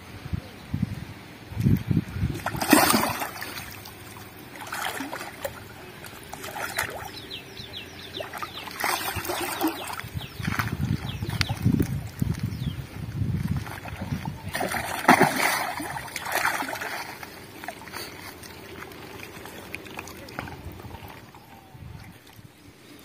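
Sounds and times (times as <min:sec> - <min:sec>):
fish thrashing and splashing: 0:02.3 - 0:12.6, 0:13.3 - 0:22.3.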